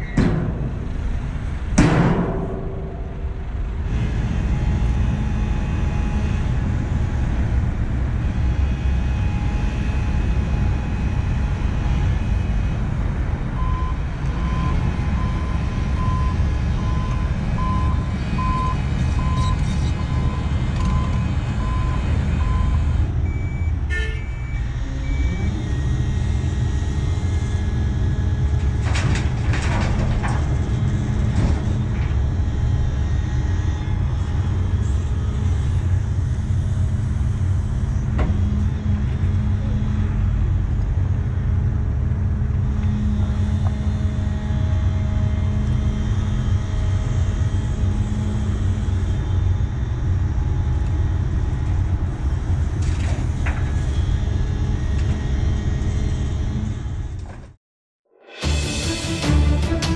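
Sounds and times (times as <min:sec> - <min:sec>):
heavy diesel engines rumbling: 0:00.0 - 0:57.6, 0:58.4 - 0:59.9
reversing alarm beeping: 0:13.6 - 0:26.0.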